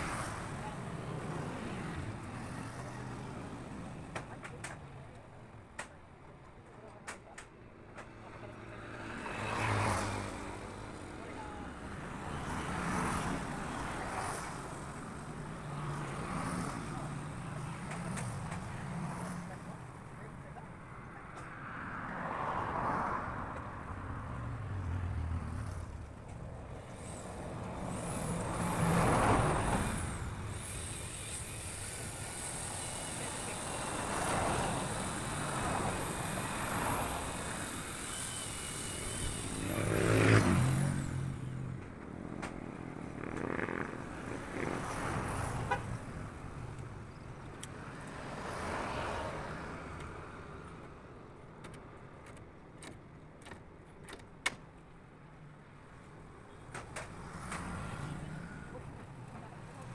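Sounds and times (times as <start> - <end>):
cars passing: 0.0 - 53.3, 54.7 - 59.9
motorcycles passing: 21.9 - 50.0.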